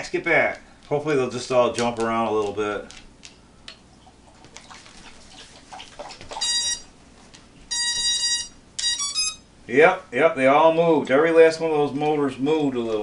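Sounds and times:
drone motor beeps: 6.4 - 6.9, 7.7 - 9.4.

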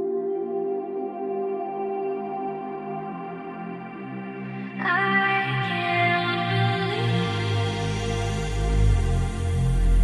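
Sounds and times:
low bass line: 8.0 - 10.0.

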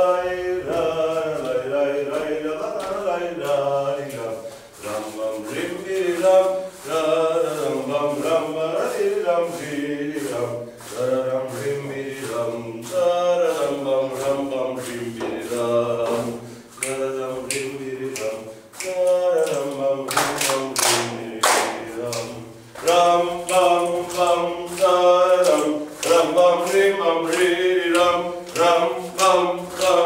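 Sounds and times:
faint regular taps: 7.6 - 30.0.

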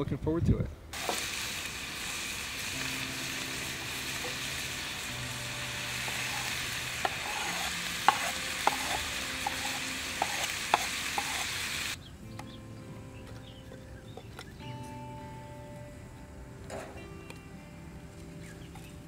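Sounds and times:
meat sizzling in a pot: 1.0 - 12.0
knife scraping cutting board: 6.3 - 11.5.

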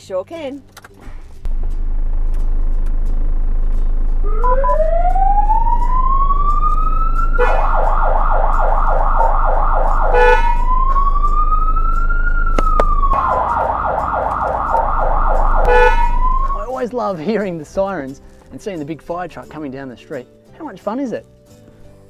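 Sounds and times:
fire truck siren: 4.2 - 16.8
short siren beeps: 4.3 - 11.0, 13.2 - 16.6.

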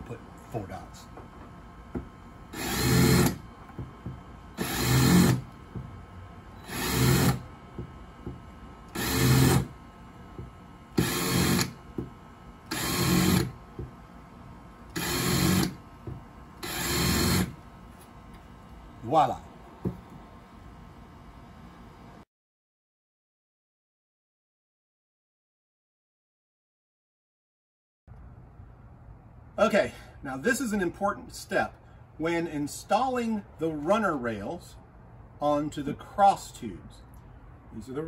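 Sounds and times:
power drill bursts: 2.5 - 3.4, 4.5 - 5.6, 6.6 - 7.4, 8.9 - 9.8, 10.9 - 11.8, 12.6 - 13.6, 14.9 - 15.8, 16.6 - 17.6.

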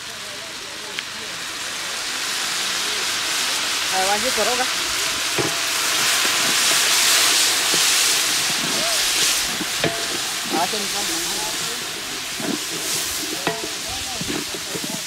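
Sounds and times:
food sizzling in hot oil: 0.0 - 15.0
wooden stick knocking on pot: 9.5 - 10.2, 12.4 - 15.0.

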